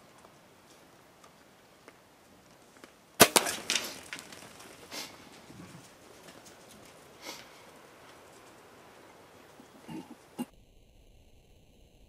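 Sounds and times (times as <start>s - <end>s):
small cracks and knocks: 2.8s - 4.9s
arrow striking: 3.2s - 5.1s
bow firing crack: 3.2s - 5.5s.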